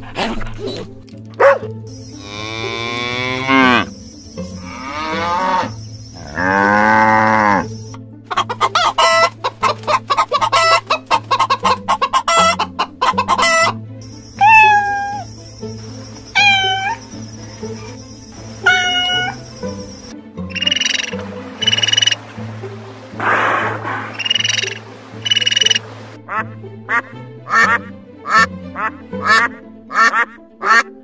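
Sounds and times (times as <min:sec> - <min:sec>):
cow mooing: 0:02.2 - 0:03.9, 0:04.6 - 0:07.7
chickens clucking: 0:02.2 - 0:22.3, 0:23.0 - 0:26.2
cat meowing: 0:14.4 - 0:15.2, 0:16.4 - 0:17.0, 0:18.6 - 0:19.4.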